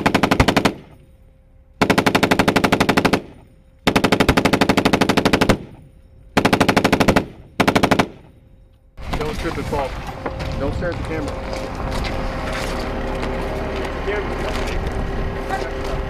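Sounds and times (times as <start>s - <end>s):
machine gun firing bursts: 0.0s - 1.1s, 1.8s - 5.8s, 6.4s - 8.4s.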